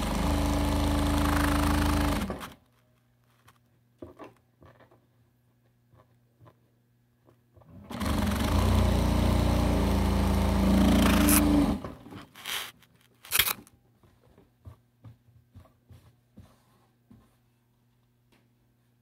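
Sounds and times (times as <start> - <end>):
sewing machine stitching: 0.0 - 2.6, 7.7 - 13.5.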